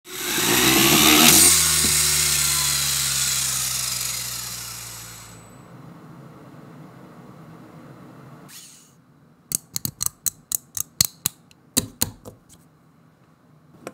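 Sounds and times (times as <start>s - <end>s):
electric launcher whirring: 0.0s - 5.6s
spinning top humming in a bowl: 0.1s - 5.7s.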